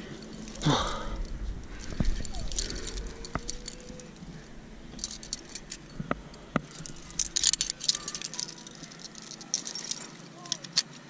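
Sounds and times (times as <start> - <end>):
carabiners jangling and clinking: 0.0 - 11.0
sharp carabiner clicks: 0.3 - 4.2, 5.0 - 11.0.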